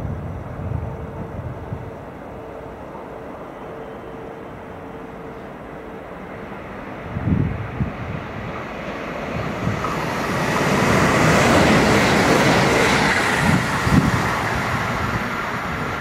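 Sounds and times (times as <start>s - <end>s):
train passing at speed: 0.0s - 16.0s.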